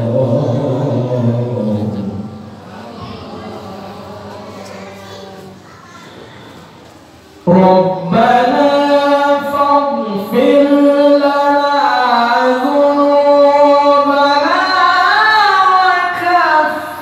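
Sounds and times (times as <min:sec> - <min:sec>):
man reciting melodically: 0:00.0 - 0:05.3, 0:07.4 - 0:17.0.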